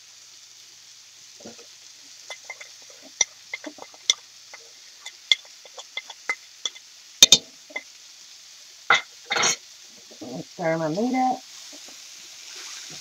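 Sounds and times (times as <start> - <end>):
utensil clinking on ceramic plate: 2.3 - 7.8, 8.9 - 9.6.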